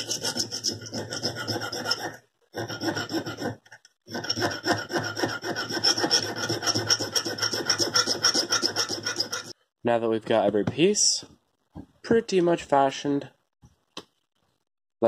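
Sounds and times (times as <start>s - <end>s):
hand file rasping on brass: 0.0s - 9.6s.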